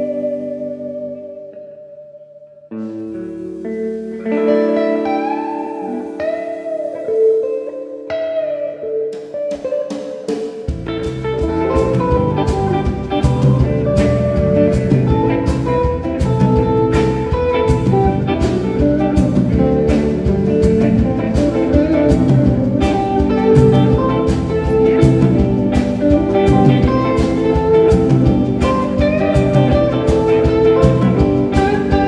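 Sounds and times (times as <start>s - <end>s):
drums: 0.0s - 1.1s, 2.8s - 32.0s
electric guitars: 0.0s - 32.0s
bass: 10.7s - 32.0s.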